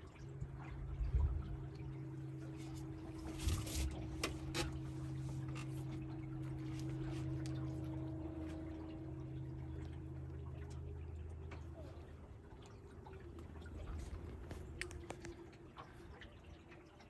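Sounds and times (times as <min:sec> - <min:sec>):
boat motor humming: 0:00.0 - 0:17.0
water lapping against hull: 0:00.0 - 0:17.0.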